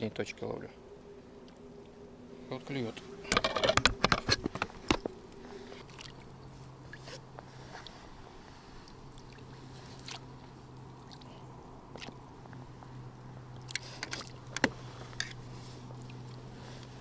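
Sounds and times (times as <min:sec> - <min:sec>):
water splashing: 0:04.8 - 0:07.2, 0:08.7 - 0:12.4.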